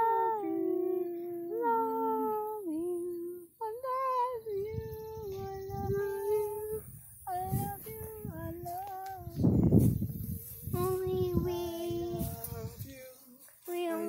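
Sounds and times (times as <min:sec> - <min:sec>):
girl singing slow tune: 0:00.0 - 0:14.0.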